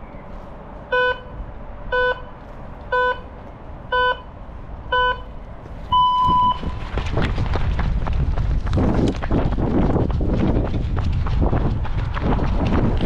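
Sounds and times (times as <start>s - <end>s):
short countdown beeps: 0.9s - 1.3s, 1.9s - 2.3s, 2.9s - 3.3s, 3.9s - 4.3s, 4.9s - 5.3s, 5.9s - 6.6s
longer higher start beep: 3.9s - 4.3s, 4.9s - 5.3s, 5.9s - 6.7s.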